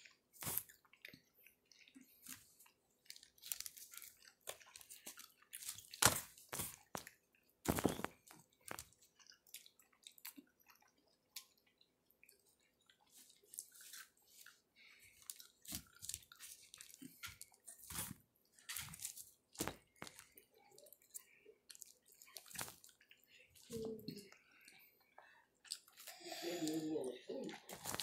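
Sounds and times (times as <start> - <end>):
wet chewing of orange: 0.0 - 28.0.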